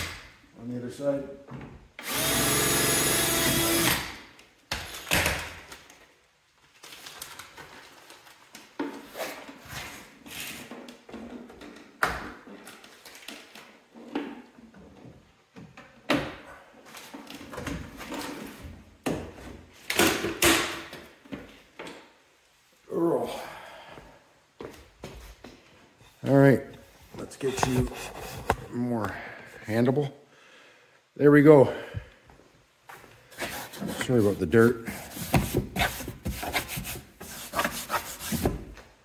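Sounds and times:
parts and tools knocking and scraping: 27.2 - 28.7.

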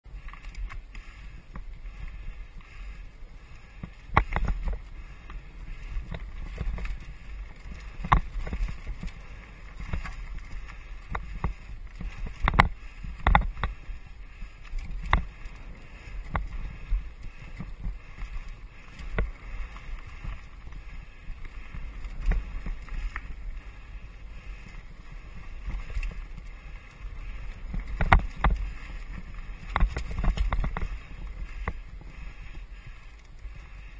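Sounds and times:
wind and tyre rumble: 0.0 - 33.9
bike clunking and rattling: 3.8 - 23.5, 27.2 - 32.6.

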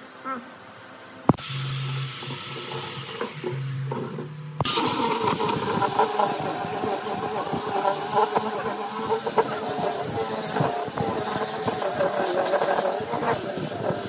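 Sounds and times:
angle grinder sanding wood: 1.3 - 14.0.

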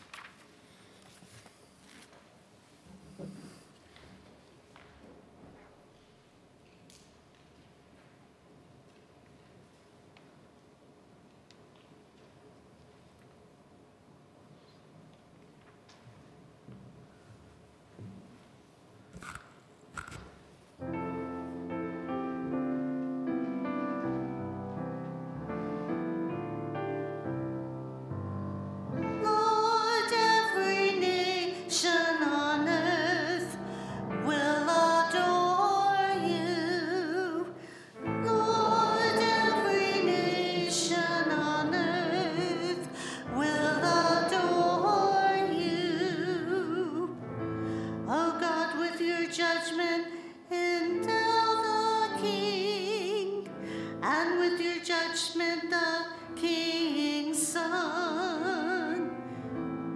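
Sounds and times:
piano accompaniment: 20.8 - 49.3, 50.8 - 54.9, 57.6 - 59.9
woman singing with vibrato: 29.0 - 47.2, 48.1 - 59.1.

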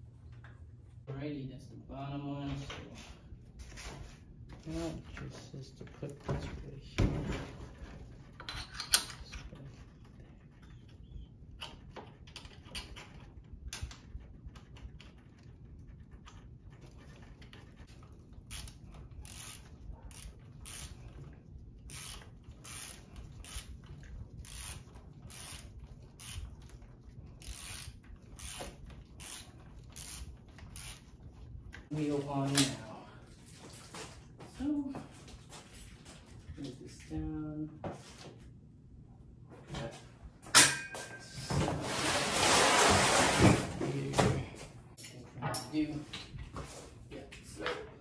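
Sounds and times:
hand ratchet clicking: 18.0 - 21.3, 21.9 - 31.1.

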